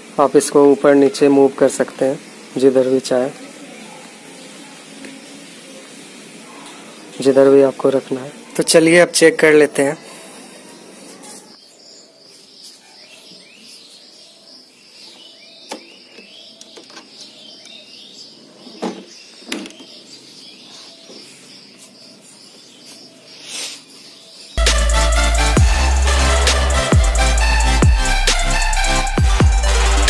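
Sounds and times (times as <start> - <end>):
faint high hiss: 0.0 - 9.0
birds chirping: 0.0 - 30.0.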